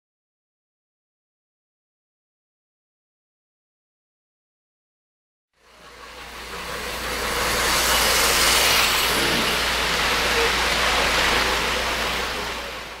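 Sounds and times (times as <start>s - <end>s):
model train rushing rumble: 5.6s - 13.0s.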